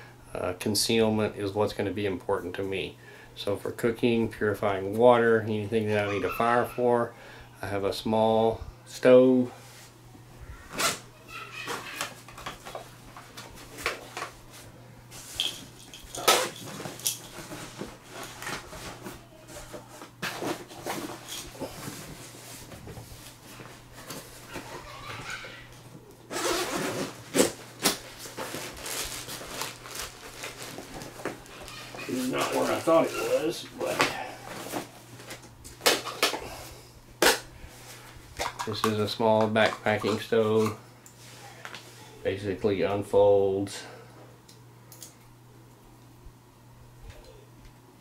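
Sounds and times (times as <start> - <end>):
zipper: 26.3 - 27.5
backpack fabric rustling: 26.3 - 35.0.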